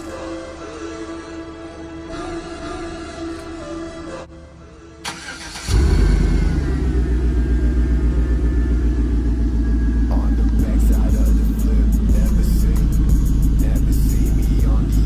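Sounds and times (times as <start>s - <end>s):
car engine starting and idling: 4.3s - 15.0s.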